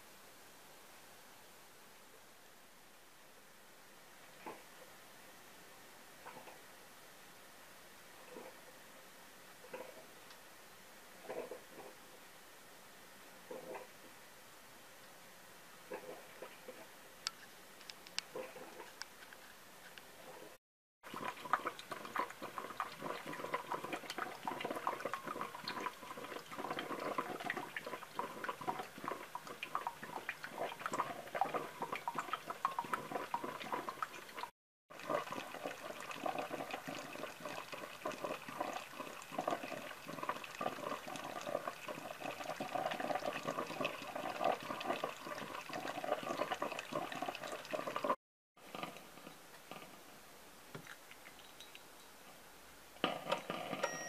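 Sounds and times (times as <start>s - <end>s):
coffee maker gurgling: 11.2s - 12.0s, 15.9s - 16.9s, 21.0s - 50.1s, 53.0s - 54.0s.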